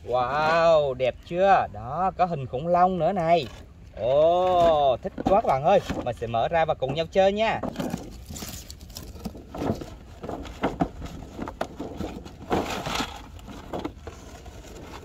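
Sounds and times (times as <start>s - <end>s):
cardboard packaging rustling: 7.6s - 15.0s.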